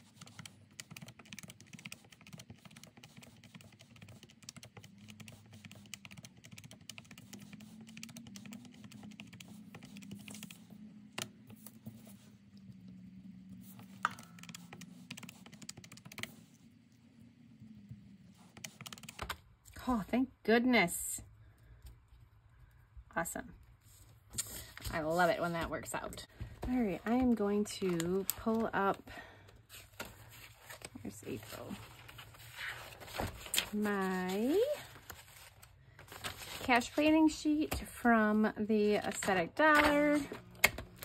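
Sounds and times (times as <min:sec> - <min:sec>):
calculator keys clicking: 0:00.0 - 0:10.6, 0:14.0 - 0:16.3.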